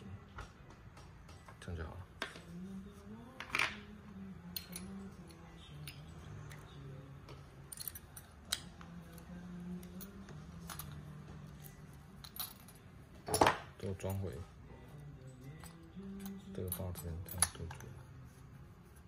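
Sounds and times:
faint background music: 0:00.0 - 0:19.0
small metal parts clinking: 0:07.7 - 0:09.2, 0:09.8 - 0:14.4, 0:15.5 - 0:18.0.

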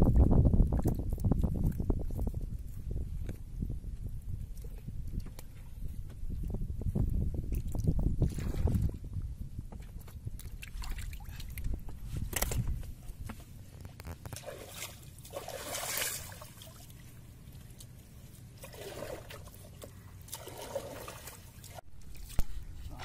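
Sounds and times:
light water splashes: 0:09.8 - 0:12.6, 0:13.9 - 0:23.0.

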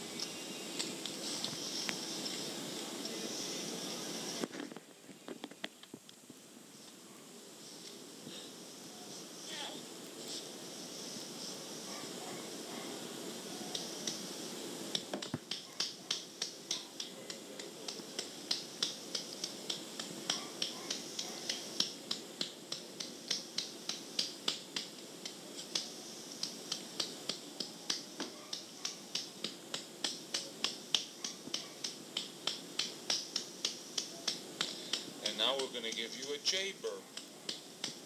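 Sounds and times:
cassette tape hiss: 0:00.0 - 0:38.0
sharp regular clicks: 0:13.7 - 0:14.3, 0:14.9 - 0:38.0.

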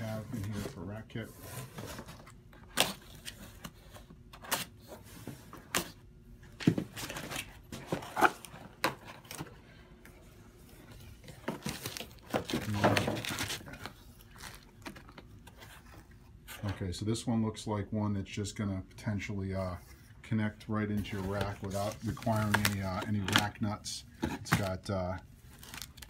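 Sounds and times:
rustling and scraping: 0:20.9 - 0:23.4.

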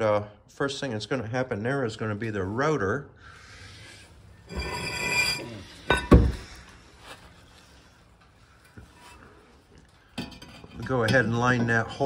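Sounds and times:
ringing metal scrape: 0:04.4 - 0:06.1.

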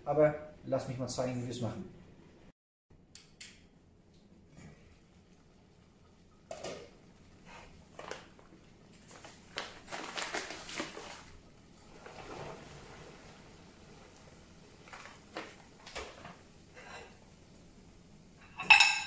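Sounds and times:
kitchen knocks and clatters: 0:06.4 - 0:07.0, 0:14.8 - 0:17.2, 0:18.4 - 0:19.0.

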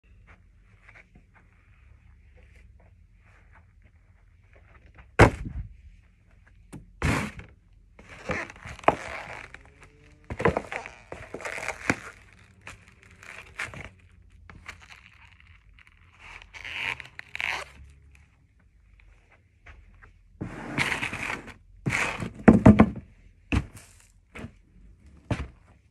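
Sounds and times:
cardboard crunching and crackling: 0:08.0 - 0:17.9.

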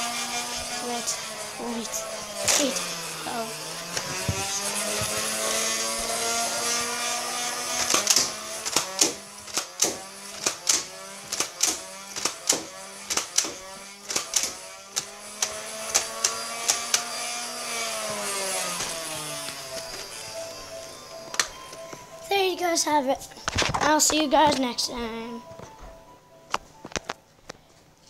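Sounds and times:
blaster motor whirring: 0:00.0 - 0:21.5
dart firing clicks: 0:07.7 - 0:17.1.

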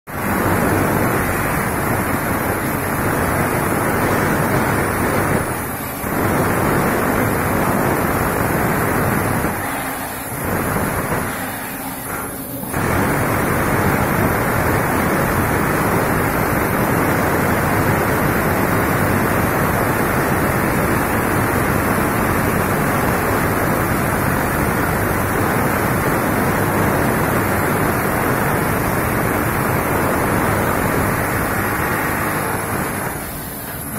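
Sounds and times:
demolition hammers chiselling concrete: 0:00.2 - 0:33.9.

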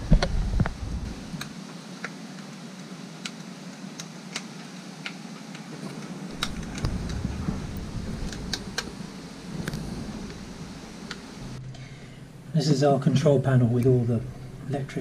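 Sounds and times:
faint low rumble: 0:00.0 - 0:01.5, 0:05.7 - 0:15.0.

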